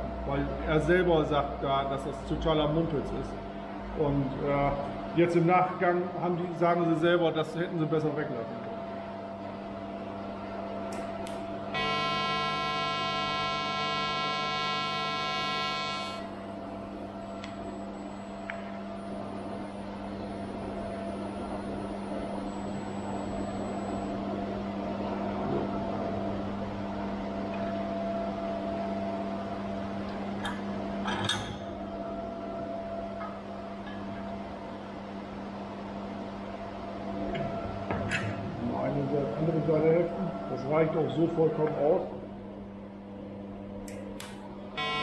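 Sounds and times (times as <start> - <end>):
welding machine hum and hiss: 10.6 - 33.8, 43.8 - 45.0
welding arc buzzing: 10.9 - 17.0, 43.8 - 45.0.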